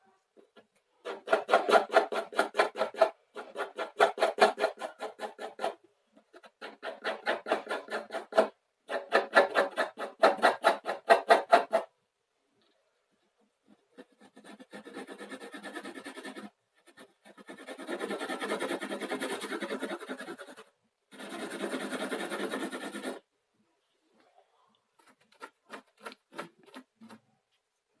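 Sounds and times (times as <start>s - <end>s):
pencil scratching on paper: 1.0s - 11.9s, 13.2s - 23.3s, 24.9s - 27.2s.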